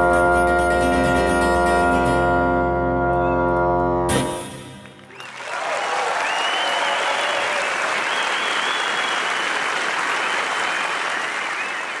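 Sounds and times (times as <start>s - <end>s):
audience applauding: 4.8s - 12.0s
long high whistles: 6.2s - 9.5s.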